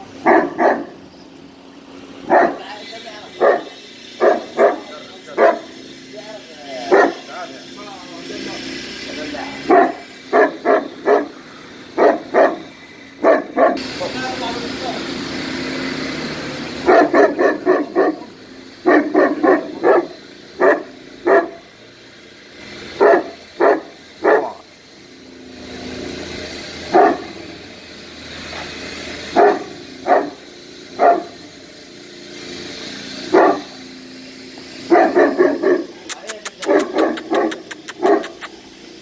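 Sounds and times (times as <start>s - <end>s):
dog barking: 0.2s - 1.0s, 2.3s - 2.7s, 3.4s - 5.7s, 6.9s - 7.2s, 9.7s - 11.4s, 12.0s - 13.8s, 16.8s - 21.6s, 23.0s - 24.6s, 26.9s - 27.3s, 29.3s - 30.4s, 31.0s - 31.4s, 33.3s - 33.7s, 34.9s - 38.5s.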